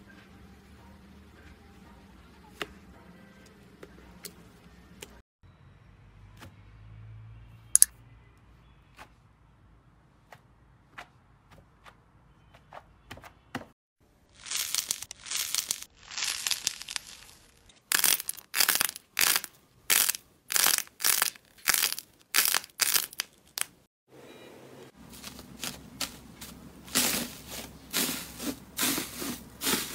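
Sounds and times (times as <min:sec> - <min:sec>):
short crunchy crackles: 0:14.3 - 0:23.9
slime crackling squeezes: 0:14.4 - 0:23.8.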